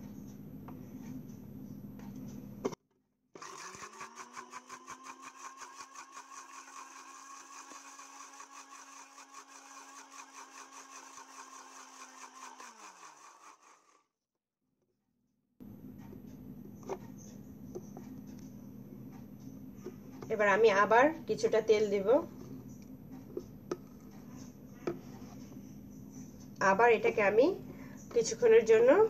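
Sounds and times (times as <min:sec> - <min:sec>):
mixer grinder motor whine: 0:03.4 - 0:14.2.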